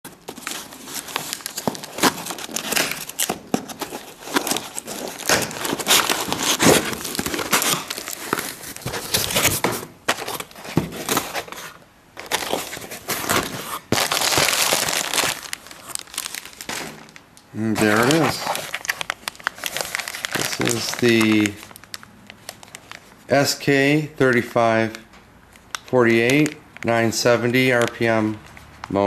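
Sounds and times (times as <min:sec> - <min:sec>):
paper and cardboard crinkling: 0:00.1 - 0:23.4.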